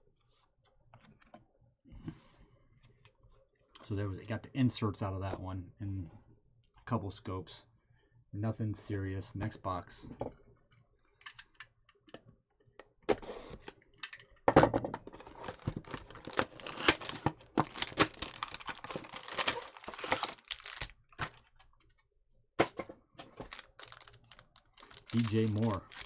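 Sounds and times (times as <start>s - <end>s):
plastic-wrapped cards crackling: 15.2s - 21.7s, 23.3s - 26.0s
cardboard box tearing: 15.5s - 20.9s.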